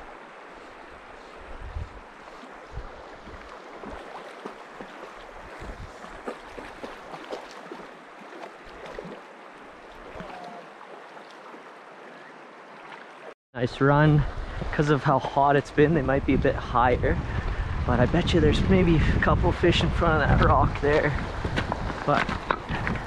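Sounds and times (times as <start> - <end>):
river rushing over cobbles: 0.0 - 13.4
water splashes and gurgles: 0.0 - 13.4
wind buffeting microphone: 1.0 - 4.1, 4.8 - 7.3, 15.7 - 23.0.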